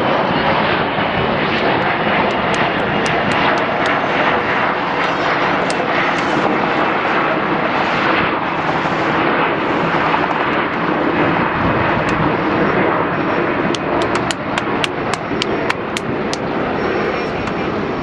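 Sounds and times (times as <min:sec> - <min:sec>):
jet engine roar: 0:00.0 - 0:18.0
sharp clicks: 0:02.3 - 0:04.0, 0:13.7 - 0:16.5.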